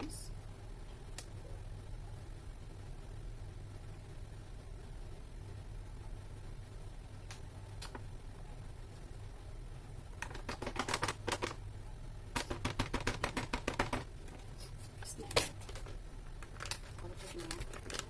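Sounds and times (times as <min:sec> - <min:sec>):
low steady hum: 0:00.0 - 0:18.0
flour bag crinkling: 0:15.4 - 0:18.0.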